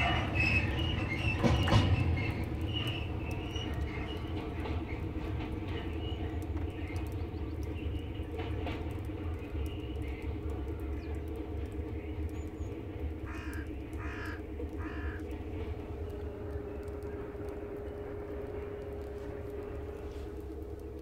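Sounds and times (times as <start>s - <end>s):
steady low rumble: 0.0s - 21.0s
crows cawing: 13.2s - 19.4s.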